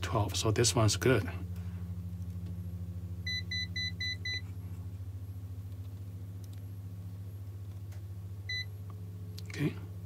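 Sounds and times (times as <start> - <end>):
low electrical hum: 0.0 - 10.0
capacitor tester beeping: 3.2 - 4.5, 8.5 - 8.7.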